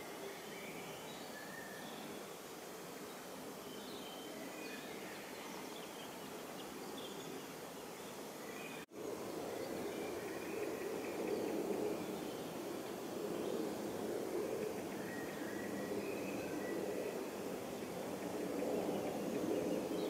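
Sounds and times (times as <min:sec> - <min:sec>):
steady background hiss: 0:00.0 - 0:20.0.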